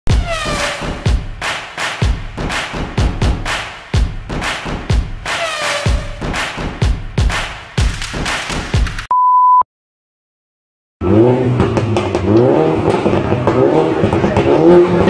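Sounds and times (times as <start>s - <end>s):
music with heavy beat: 0.1s - 9.1s
electronic beep: 9.1s - 9.6s
car engine revving: 11.0s - 15.0s.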